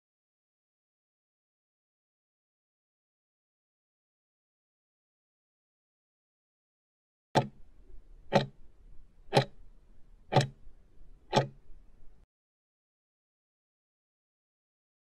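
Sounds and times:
clock-like timer ticks: 7.4s - 7.6s, 8.3s - 8.6s, 9.3s - 9.6s, 10.3s - 10.6s, 11.3s - 11.6s.

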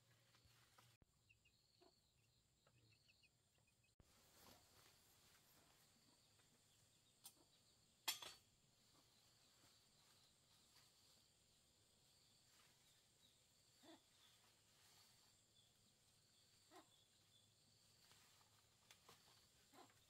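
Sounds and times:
faint rustling of leafy vines: 0.0s - 1.0s, 4.0s - 7.5s, 8.7s - 20.0s.

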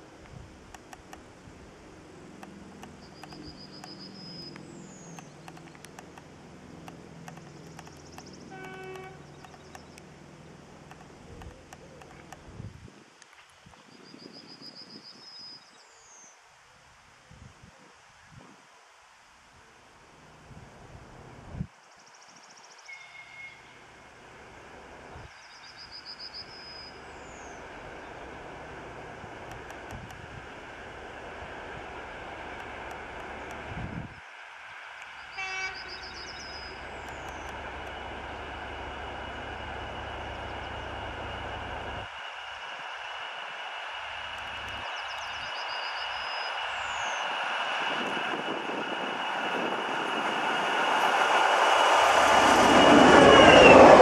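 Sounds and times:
distant diesel locomotive drone: 0.0s - 12.7s, 19.0s - 54.0s
faint clicks: 0.2s - 1.3s, 2.4s - 10.1s, 10.8s - 12.5s, 29.4s - 30.2s, 32.6s - 33.7s, 37.0s - 38.0s.

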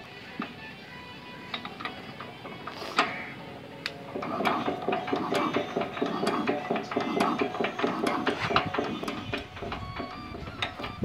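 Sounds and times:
diesel engine knocking: 4.2s - 11.0s.

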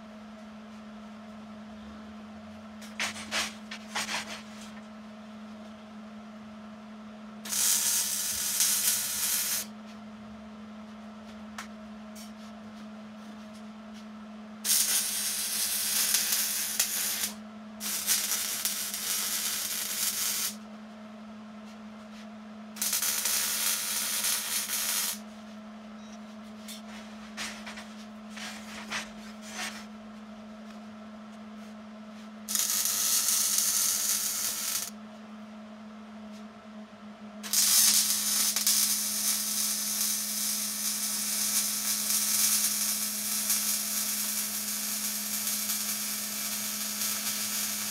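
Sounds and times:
arc welding crackling hiss: 7.4s - 9.7s, 14.6s - 20.6s, 22.8s - 25.2s, 32.5s - 35.0s, 37.4s - 47.9s.

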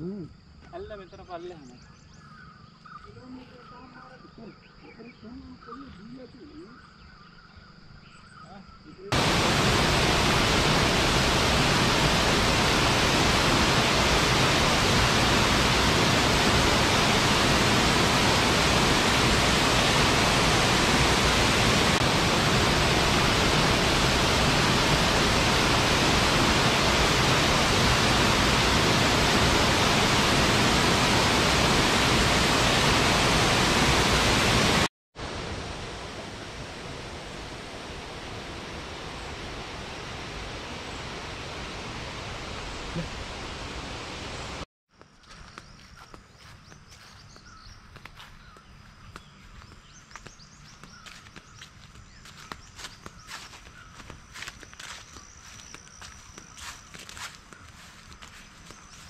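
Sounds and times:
waterfall rushing: 9.1s - 44.7s.

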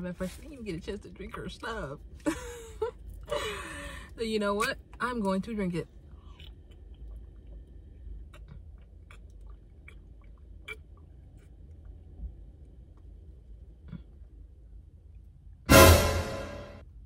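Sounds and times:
person gulping and swallowing: 6.2s - 12.1s.

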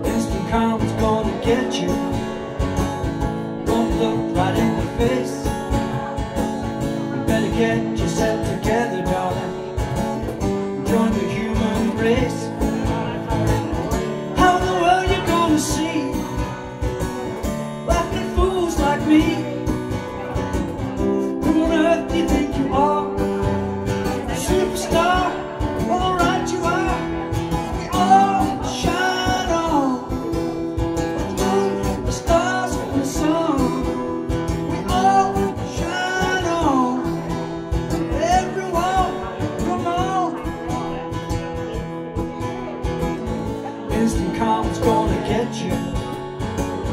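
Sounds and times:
acoustic guitar strumming: 0.0s - 46.9s
cajon beat: 0.0s - 46.9s
man singing: 0.0s - 46.9s.

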